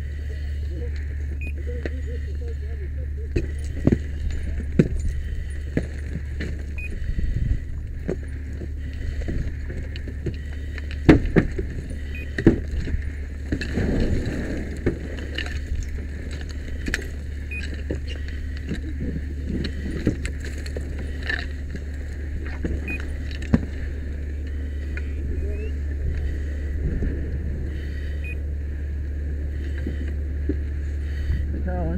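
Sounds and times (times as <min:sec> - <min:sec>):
fire engine droning: 0:00.0 - 0:31.9.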